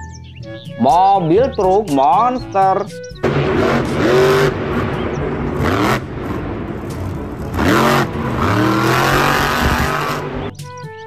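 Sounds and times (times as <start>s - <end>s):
engine revving up: 3.2s - 10.5s.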